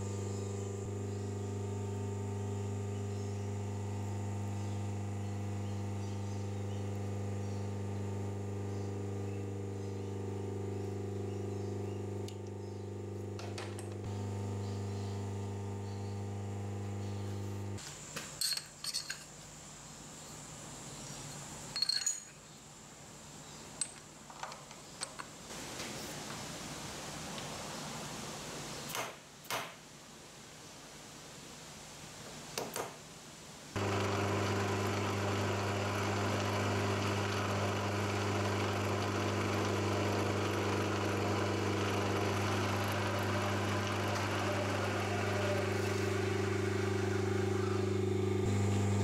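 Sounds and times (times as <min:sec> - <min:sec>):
milling machine hum: 0:00.0 - 0:17.8, 0:33.8 - 0:49.0
metallic clinks of metal parts: 0:18.4 - 0:19.3, 0:21.7 - 0:22.4.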